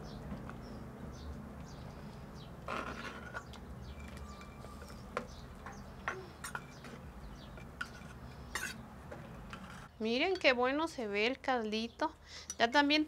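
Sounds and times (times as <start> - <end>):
small birds chirping: 0.0 - 2.7, 3.3 - 8.9
metal ladle scraping clay pot: 2.6 - 5.5, 6.2 - 8.8, 9.4 - 10.6.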